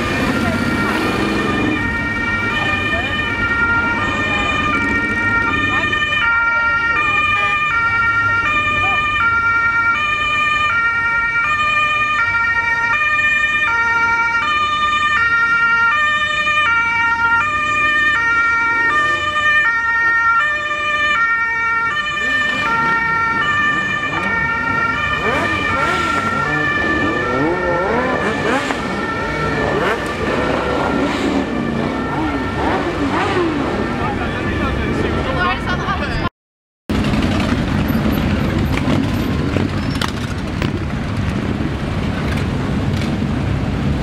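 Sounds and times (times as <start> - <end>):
two-tone siren: 0.0 - 35.8
vehicle engines rumbling: 0.0 - 36.3, 36.9 - 44.0.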